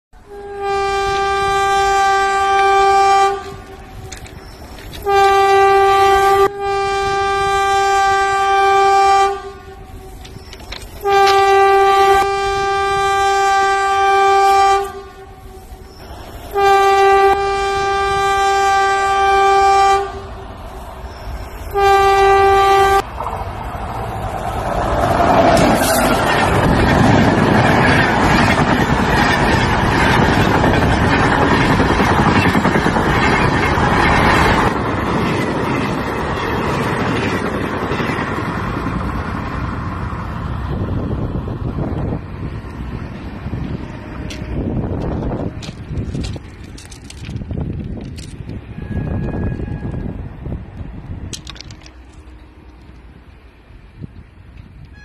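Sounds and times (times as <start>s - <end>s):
train horn blasts: 0.2s - 20.5s, 21.2s - 23.1s, 48.7s - 50.2s
train arriving on track: 0.2s - 55.0s.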